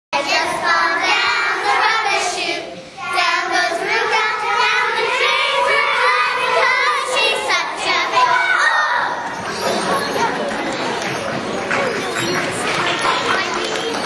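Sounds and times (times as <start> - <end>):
children singing: 0.2 - 10.5.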